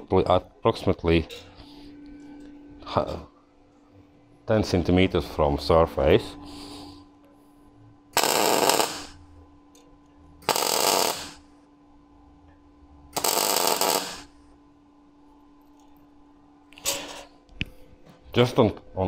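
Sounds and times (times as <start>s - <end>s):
faint steady hum: 0.0s - 19.0s
arc welder bursts: 8.2s - 9.2s, 10.4s - 11.5s, 13.1s - 14.4s.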